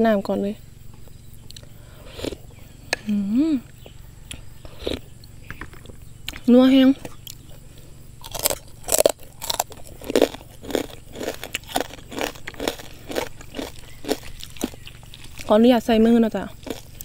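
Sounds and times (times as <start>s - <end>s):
chewing: 1.0s - 2.5s, 3.8s - 15.5s, 16.6s - 17.0s
crispy pork rind crunching: 8.2s - 15.5s, 16.5s - 17.0s.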